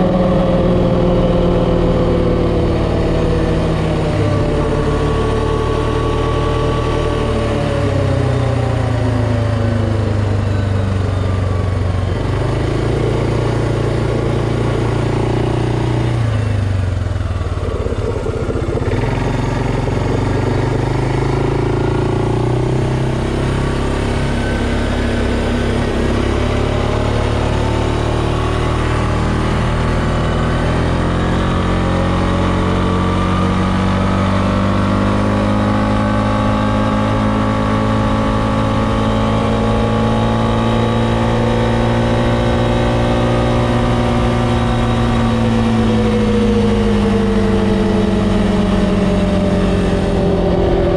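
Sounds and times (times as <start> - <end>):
atv engine running: 0.0 - 50.9.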